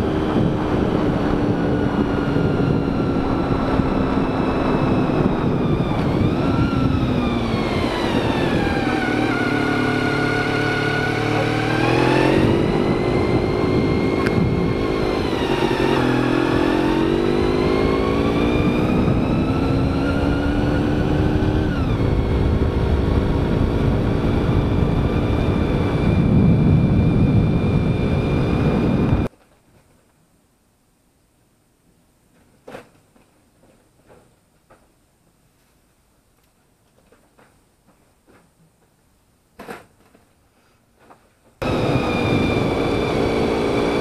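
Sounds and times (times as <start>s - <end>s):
motorcycle engine revving: 0.0s - 29.3s, 41.6s - 44.0s
wind rush: 0.0s - 29.3s, 41.6s - 44.0s.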